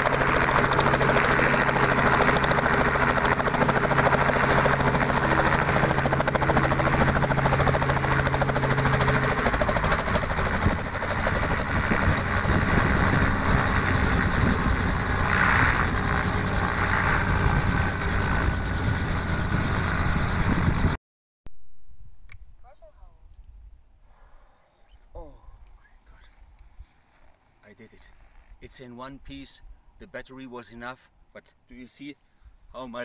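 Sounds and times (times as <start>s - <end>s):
helicopter running: 0.0s - 21.0s.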